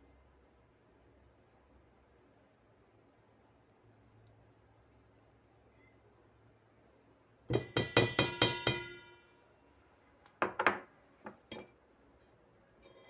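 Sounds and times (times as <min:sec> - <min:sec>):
metal bowl ringing when tapped: 0:07.5 - 0:09.3.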